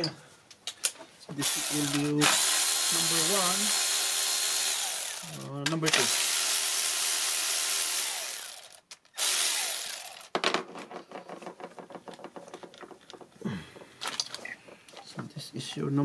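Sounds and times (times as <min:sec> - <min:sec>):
tool and parts clicking and rattling: 0:00.0 - 0:15.8
cordless electric ratchet running: 0:01.4 - 0:10.3.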